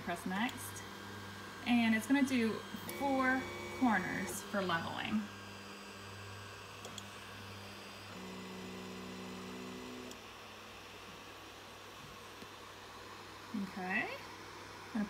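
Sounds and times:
low steady hum: 0.0 - 15.0
stepper motors whining: 0.4 - 5.8.

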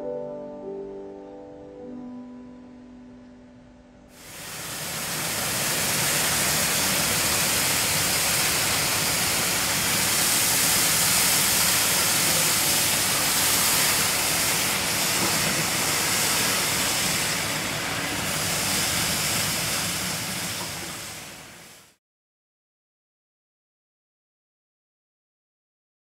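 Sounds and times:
slow piano and string music: 0.0 - 21.6
hose water splashing on pavement: 4.2 - 22.0.

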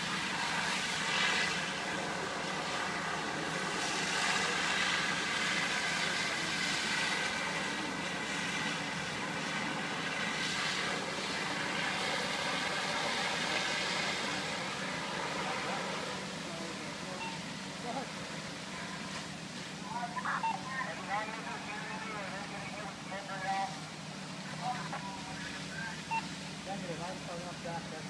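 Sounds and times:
diesel engines droning: 0.0 - 28.0.

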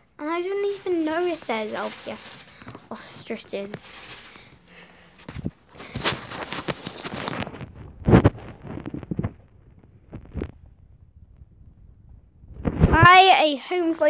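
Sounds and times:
rustling handling noise: 0.2 - 10.6.

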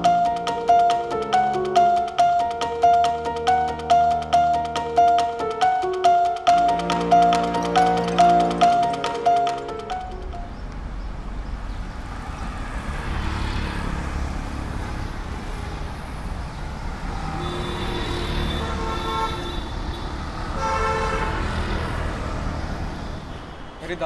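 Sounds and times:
rumble of passing vehicles: 0.0 - 24.0
car horns honking: 17.2 - 21.8.

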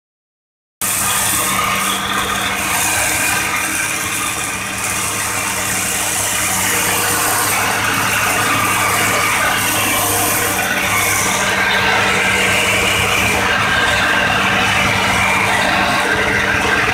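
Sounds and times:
diesel engine droning: 0.8 - 16.9.

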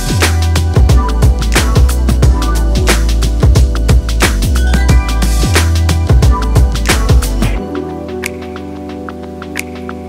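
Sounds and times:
electronic music with drum beat: 0.0 - 10.0.

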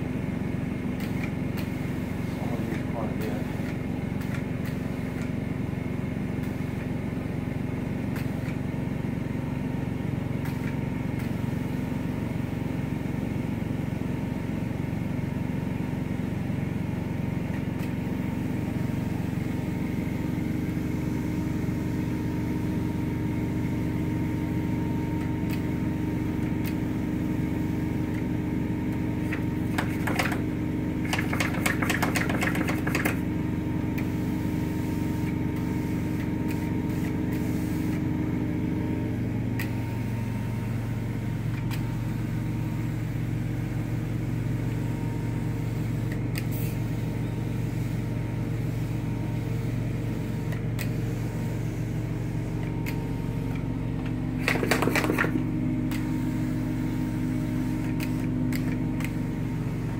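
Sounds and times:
hand sprayer hissing: 29.2 - 33.3, 54.3 - 59.9.

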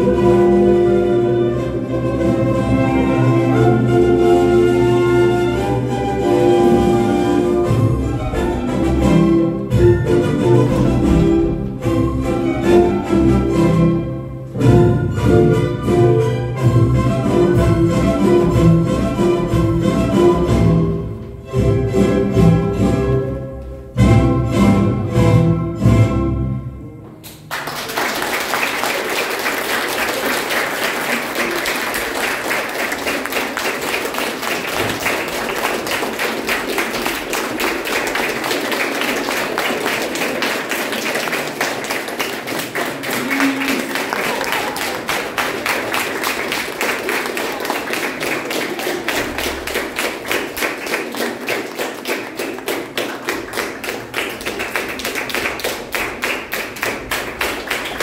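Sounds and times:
audience applauding: 27.4 - 58.0.

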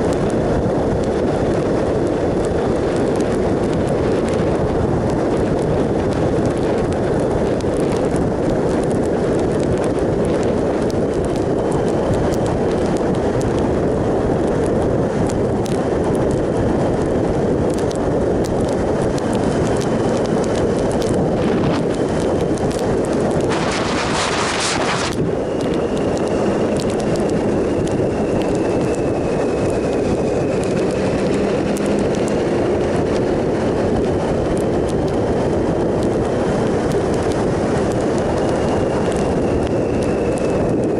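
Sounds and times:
wind rush over microphone: 0.0 - 40.9
motorcycle engine: 15.6 - 40.6.

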